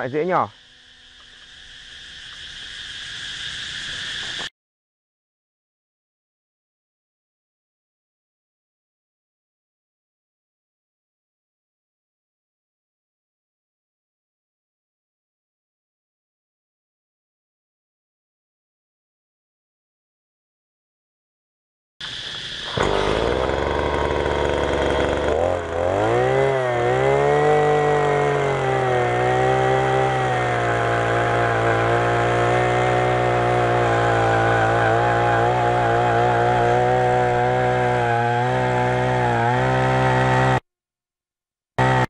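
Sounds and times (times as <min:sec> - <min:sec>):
earth auger engine running: 0:22.0 - 0:40.6, 0:41.8 - 0:42.0.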